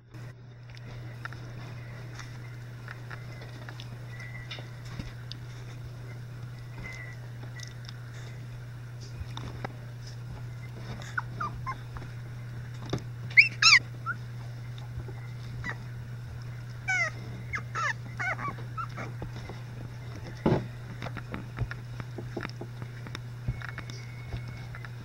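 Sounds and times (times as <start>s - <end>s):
steady low hum: 0.0s - 25.0s
rustles and clicks of squirming puppies: 0.2s - 25.0s
puppies whimpering and squeaking: 10.4s - 20.4s.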